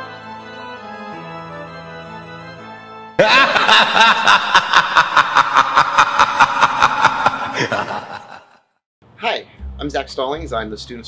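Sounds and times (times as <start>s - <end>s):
person laughing: 3.2s - 8.6s.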